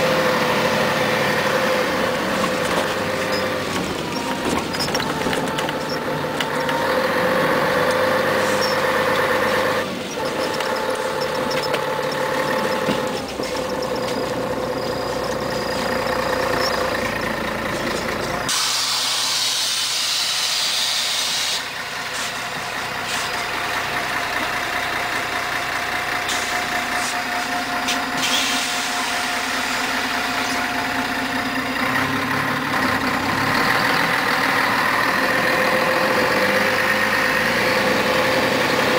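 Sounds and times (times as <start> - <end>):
bus diesel engine: 0.0 - 38.9
compressed air hiss: 18.5 - 22.4, 26.3 - 30.6.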